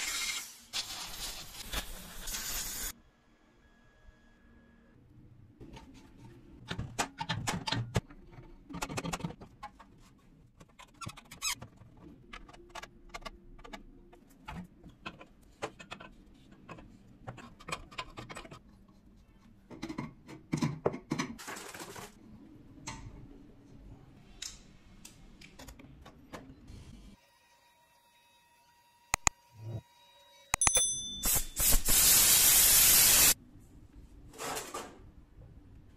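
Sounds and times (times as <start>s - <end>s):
short air hiss: 31.2s - 33.4s.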